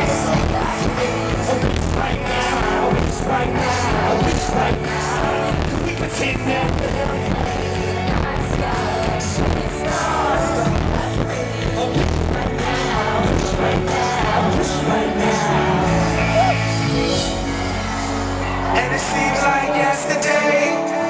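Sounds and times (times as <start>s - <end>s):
backing track with steady beat: 0.0s - 21.0s
woman singing into microphone: 6.6s - 15.8s.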